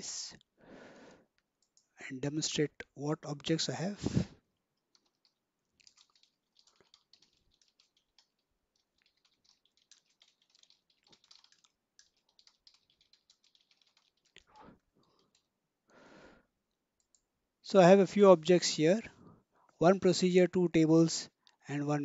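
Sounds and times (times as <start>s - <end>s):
faint keyboard typing: 1.4s - 2.0s, 4.6s - 15.6s, 16.7s - 17.4s.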